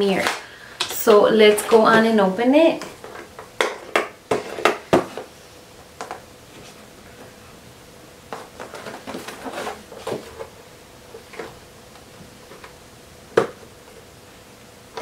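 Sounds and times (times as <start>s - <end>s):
cardboard box rustling and scraping: 8.7s - 10.5s.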